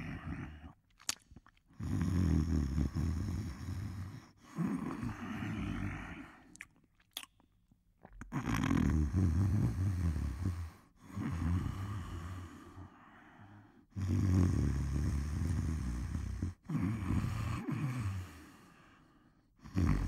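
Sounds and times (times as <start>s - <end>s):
person snoring: 0.0s - 0.8s, 1.8s - 6.5s, 8.3s - 18.8s, 19.6s - 20.0s
quiet breath: 2.8s - 6.6s, 9.6s - 14.0s, 15.8s - 20.0s.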